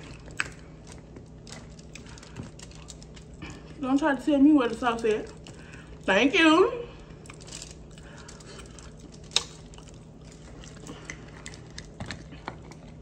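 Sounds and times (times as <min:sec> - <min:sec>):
mouth chewing: 0:00.0 - 0:03.8, 0:07.1 - 0:13.0.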